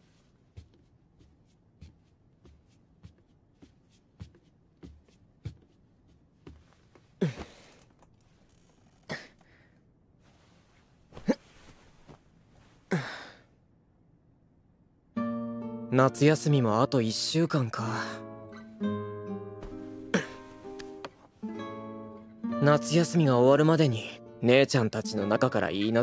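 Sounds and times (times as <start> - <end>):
soft footsteps: 0.0 - 9.0, 10.2 - 12.9, 19.6 - 21.4
person breathing and sighing: 7.1 - 8.0, 9.0 - 10.5, 12.7 - 13.6, 19.6 - 21.1.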